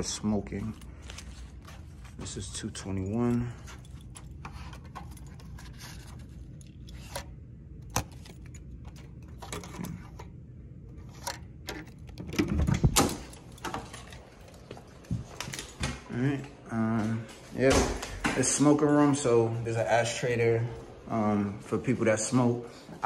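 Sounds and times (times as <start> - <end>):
keys jangling: 2.4 - 7.2, 11.8 - 14.8
door handle clatter and door opening: 11.2 - 16.1.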